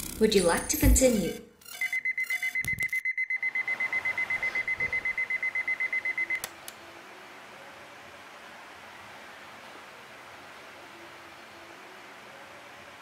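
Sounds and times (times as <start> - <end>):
alarm clock beeping: 0.2 - 6.4
faint room hiss: 3.6 - 13.0.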